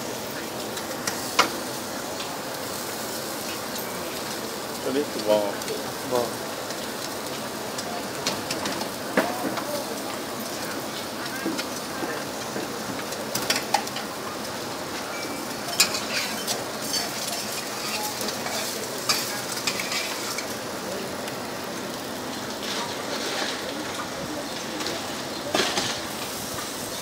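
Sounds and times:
meat sizzling on grill: 0.0 - 27.0
metal tongs clicking on grill: 0.8 - 1.6, 15.7 - 20.5.

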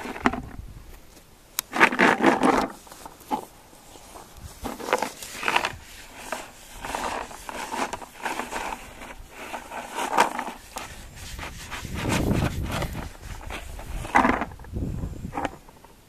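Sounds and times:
plastic jug rattling: 0.0 - 0.6, 1.7 - 3.4, 11.8 - 14.7.

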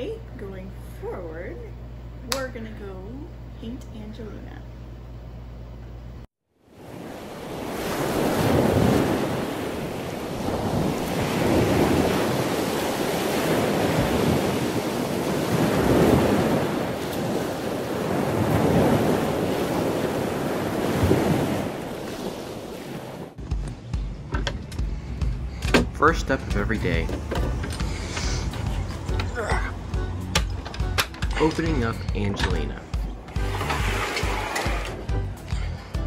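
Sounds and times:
ocean waves breaking: 6.6 - 23.4, 31.4 - 36.0.

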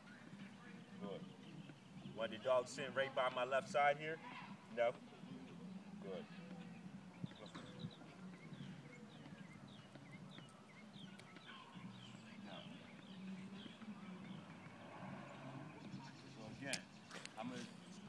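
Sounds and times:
soft footsteps on asphalt: 0.0 - 18.0.

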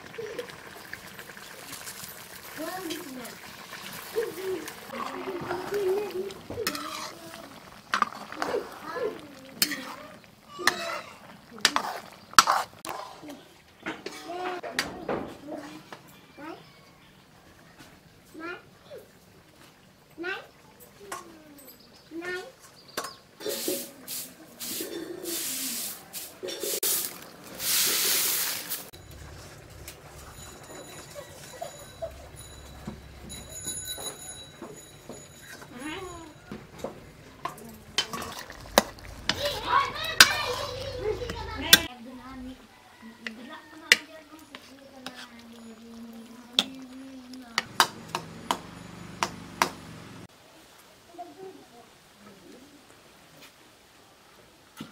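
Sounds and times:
broom sweeping hard floor: 23.4 - 29.0
ladle clinking against pot: 29.0 - 39.3.

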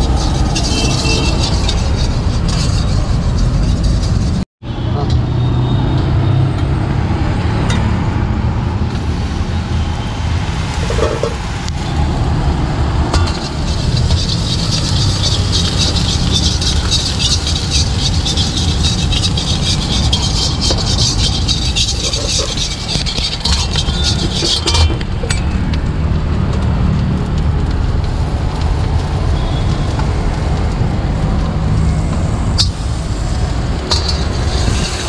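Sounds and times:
metal spatula scraping wok: 0.0 - 4.4, 10.8 - 11.4, 13.1 - 25.6, 33.7 - 35.0
gas burner rumbling: 9.0 - 35.0
vegetables sizzling in oil: 13.5 - 21.7.

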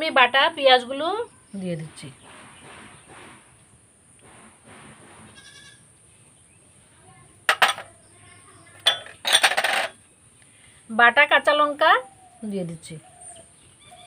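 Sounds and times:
goat bleating: 5.4 - 5.8.

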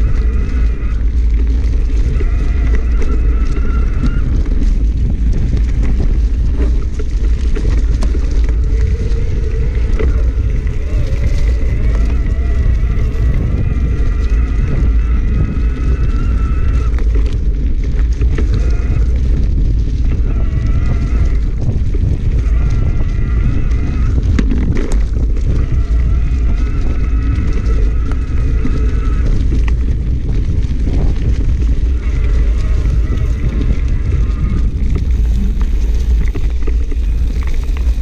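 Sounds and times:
bike tyres on dirt: 0.0 - 38.0
wind buffeting: 0.0 - 38.0
high steady whine: 22.4 - 38.0.

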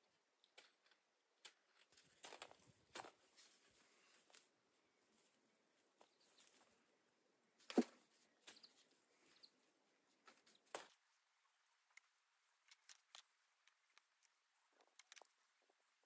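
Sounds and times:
faint rustles: 1.7 - 11.2.

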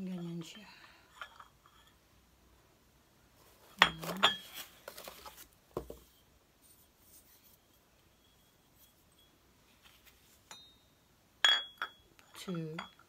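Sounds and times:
cup and saucer clinking: 3.8 - 4.6, 10.5 - 13.0.

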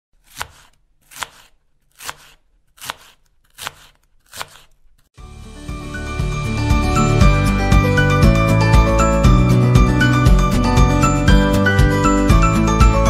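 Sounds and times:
sharp strokes: 0.2 - 4.9
background music with chiming bells: 5.4 - 13.0.

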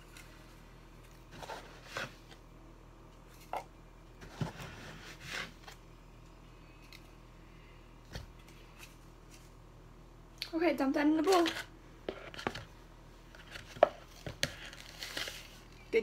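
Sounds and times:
sugar scooping scrapes and rustles: 0.0 - 2.4, 4.2 - 5.8, 13.3 - 15.9
low steady hum: 0.0 - 16.0.

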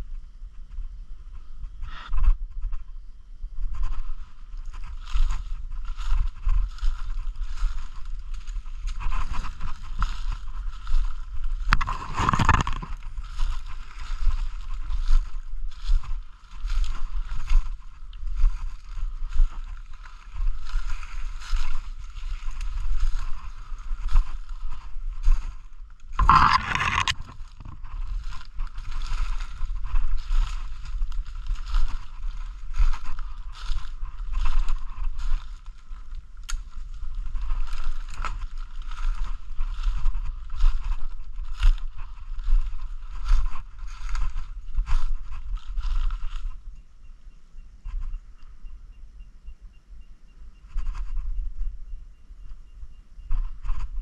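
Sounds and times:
rustling of brush and clothing: 0.0 - 48.7, 50.4 - 54.0
footsteps crunching through dry leaves: 3.6 - 46.7.

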